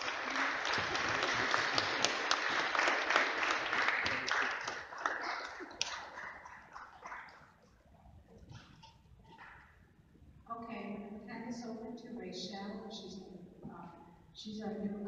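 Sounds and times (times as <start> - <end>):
audience clapping: 0.0 - 7.8.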